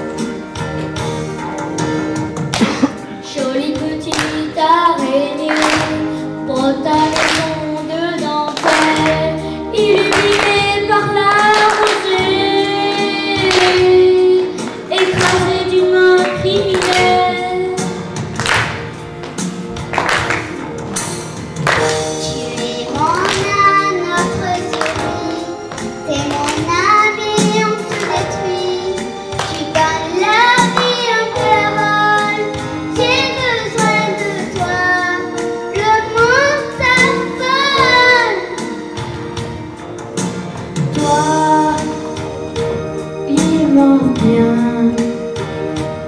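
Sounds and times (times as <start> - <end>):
instrumental accompaniment: 0.0 - 46.0
boy singing: 3.2 - 17.9, 22.2 - 38.6, 41.0 - 42.1, 43.3 - 45.2.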